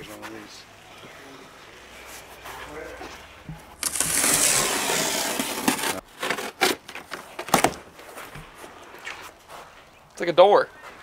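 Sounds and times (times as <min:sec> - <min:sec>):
cardboard tearing and scraping: 0:03.8 - 0:07.7.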